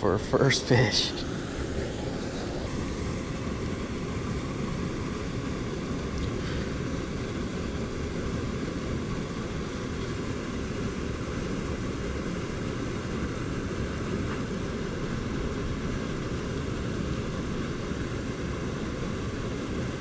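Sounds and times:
steady rushing noise: 0.0s - 20.0s.

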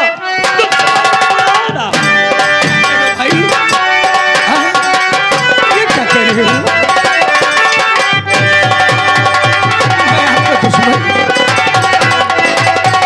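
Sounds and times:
held instrument tones: 0.0s - 13.0s
rapid hand drum strokes: 0.3s - 13.0s
wavering melodic line: 0.3s - 13.0s.

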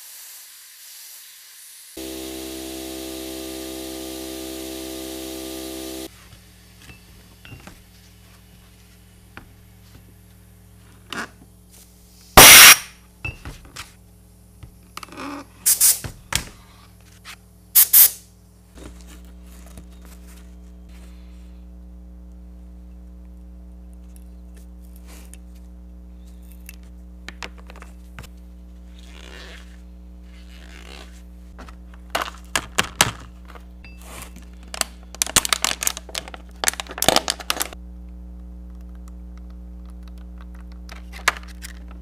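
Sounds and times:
pressurized spray hissing: 0.0s - 6.1s
low hum: 2.0s - 6.1s.

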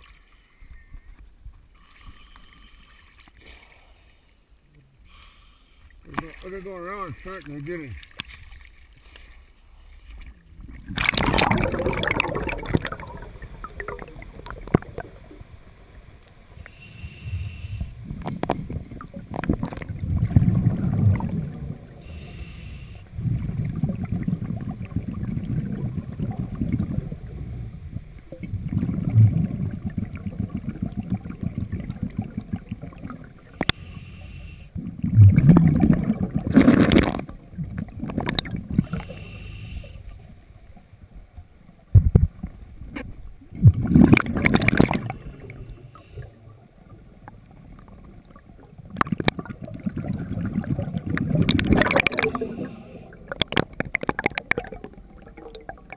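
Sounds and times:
underwater rumbling: 0.0s - 55.9s
water splash: 6.1s - 15.6s, 34.9s - 39.1s, 41.9s - 45.3s, 48.6s - 55.9s.

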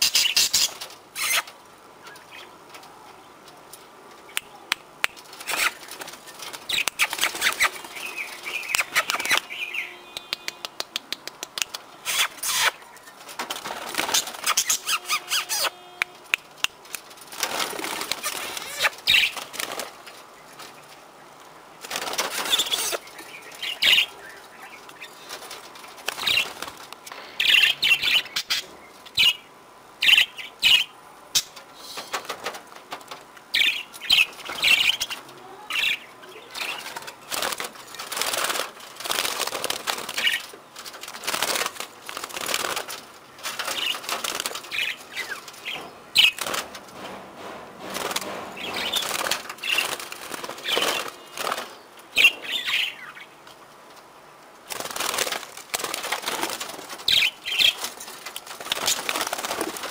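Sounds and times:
birds flapping wings: 5.0s - 9.6s, 10.2s - 21.0s, 21.8s - 24.2s, 24.9s - 27.5s, 31.4s - 52.9s, 54.6s - 59.9s.

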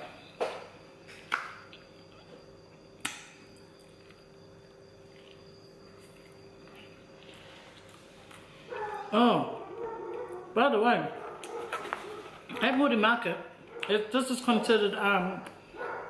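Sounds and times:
low electrical hum: 0.0s - 16.0s
faint chewing: 1.2s - 10.5s, 11.2s - 12.7s.

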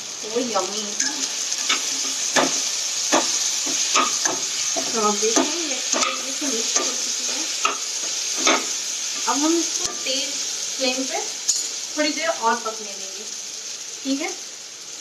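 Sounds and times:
food sizzling in oil: 0.0s - 15.0s
spatula scraping and knocking pan: 1.0s - 10.1s.

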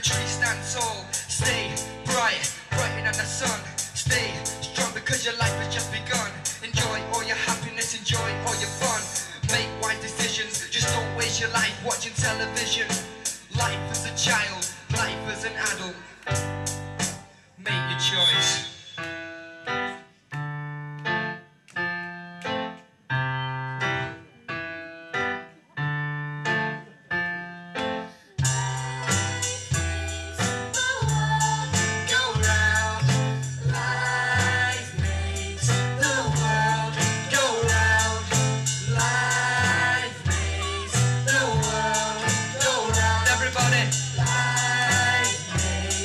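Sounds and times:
voices singing together: 0.0s - 15.9s, 28.4s - 46.0s
keyboard chords: 0.0s - 46.0s.

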